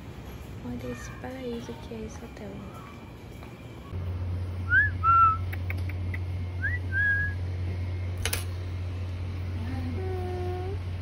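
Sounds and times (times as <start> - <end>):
steady low hum: 1.6 - 11.0
person whistling: 4.7 - 5.5, 6.6 - 7.4.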